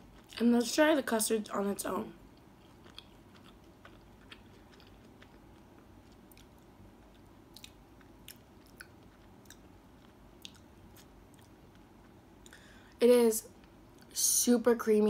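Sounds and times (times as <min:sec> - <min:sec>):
wet mouth chewing clicks: 0:02.4 - 0:12.6.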